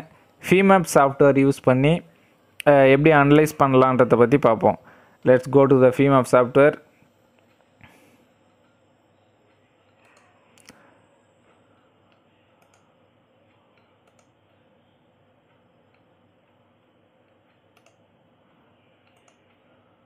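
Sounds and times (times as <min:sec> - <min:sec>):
computer mouse clicks: 0:09.9 - 0:10.8, 0:12.1 - 0:12.9, 0:13.7 - 0:14.4, 0:17.5 - 0:18.0, 0:19.0 - 0:19.6.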